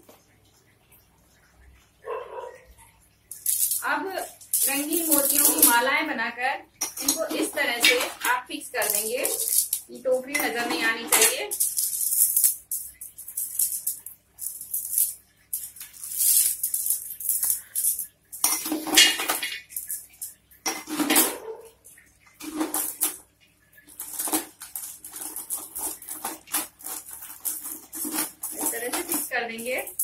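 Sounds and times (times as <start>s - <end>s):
beads clicking and rattling: 3.3s - 5.8s, 6.8s - 18.8s, 23.9s - 30.0s.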